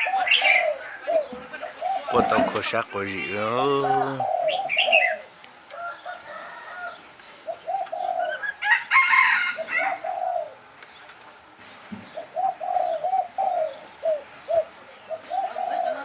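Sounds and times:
dove cooing: 0:00.0 - 0:10.7, 0:12.0 - 0:16.0
loud harsh bird call: 0:01.8 - 0:05.3.

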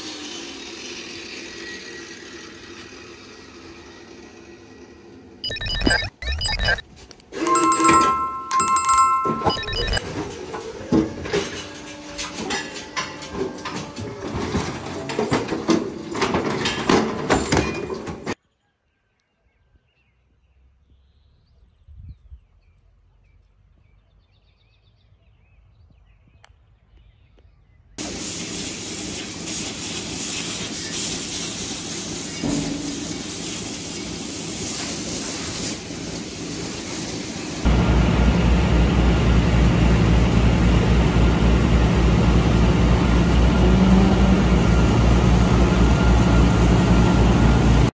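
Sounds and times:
milking machinery noise: 0:00.0 - 0:06.8, 0:09.3 - 0:18.4, 0:28.0 - 0:47.9
metal clattering and knocking: 0:10.2 - 0:18.4.

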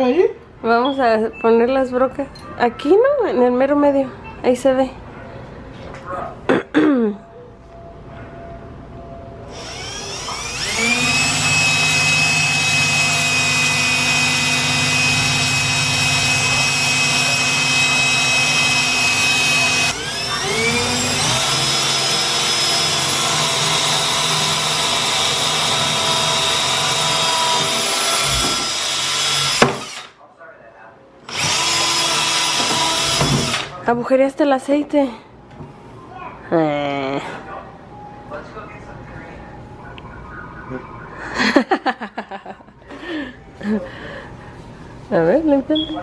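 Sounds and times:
cordless drill whining: 0:09.5 - 0:30.1, 0:31.3 - 0:33.8.

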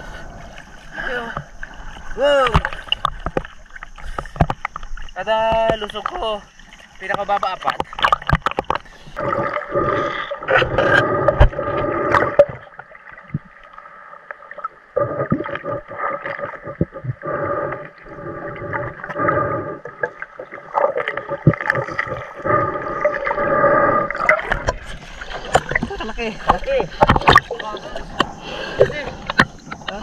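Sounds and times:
muffled underwater knocks: 0:04.1 - 0:06.2, 0:07.0 - 0:08.9, 0:24.4 - 0:30.0.

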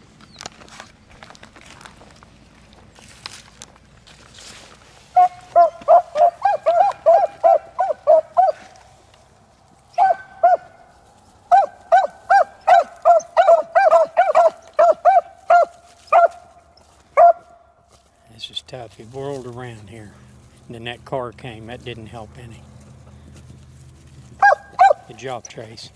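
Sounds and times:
dogs baying: 0:05.1 - 0:08.8, 0:09.8 - 0:17.6, 0:24.3 - 0:25.6.

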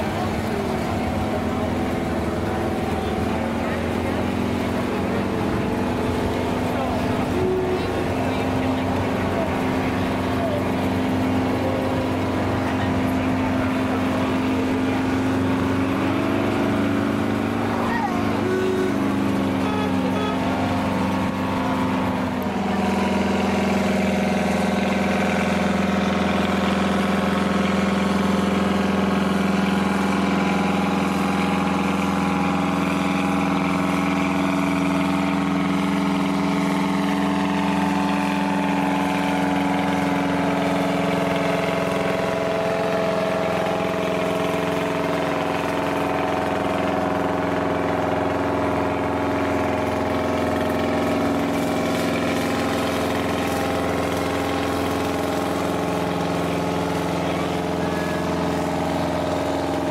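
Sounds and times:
tractor engine droning: 0:00.0 - 0:59.9.

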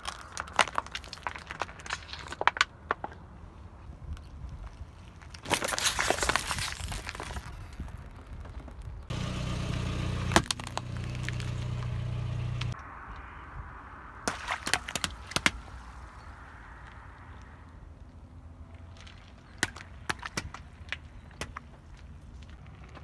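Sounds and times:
cardboard box crackling and snapping: 0:04.3 - 0:08.9, 0:10.3 - 0:11.9
car engine running: 0:09.1 - 0:12.8.

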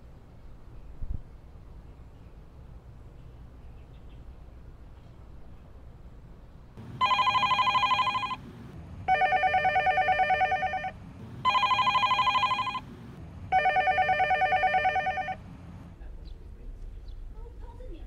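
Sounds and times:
desk telephone ringing with trill: 0:07.0 - 0:08.4, 0:09.1 - 0:10.9, 0:11.5 - 0:12.8, 0:13.5 - 0:15.4.

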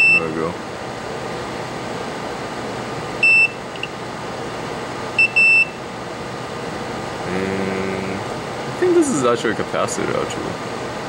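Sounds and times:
multimeter beeping: 0:00.0 - 0:00.3, 0:03.2 - 0:03.9, 0:05.2 - 0:05.8.

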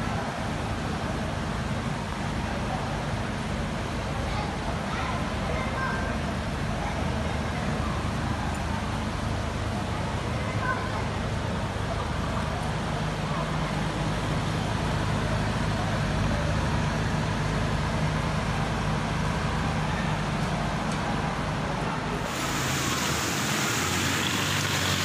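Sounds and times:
low rumble of traffic: 0:00.0 - 0:25.0
heavy rain on a street: 0:22.1 - 0:25.0.

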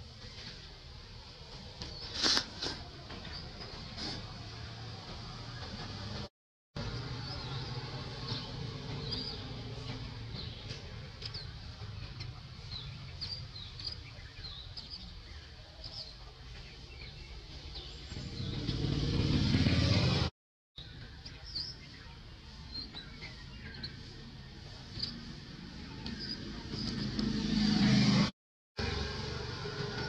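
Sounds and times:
small birds chirping: 0:00.0 - 0:04.7, 0:06.8 - 0:20.0, 0:20.8 - 0:27.4
road traffic rumble: 0:00.0 - 0:30.0
motor vehicle passing: 0:16.6 - 0:20.3, 0:23.5 - 0:30.0.

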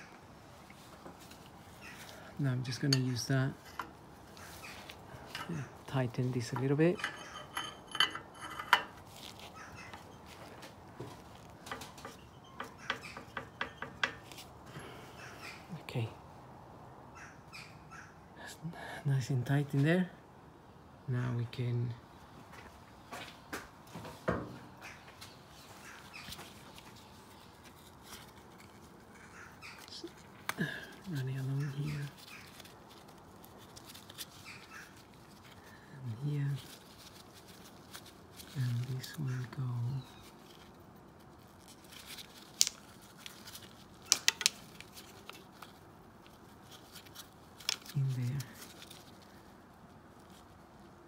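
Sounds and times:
gloves rustling: 0:00.0 - 0:15.4, 0:24.9 - 0:51.0
light clicks and taps of wire: 0:44.0 - 0:45.7
plastic clips clicking: 0:44.1 - 0:44.7.

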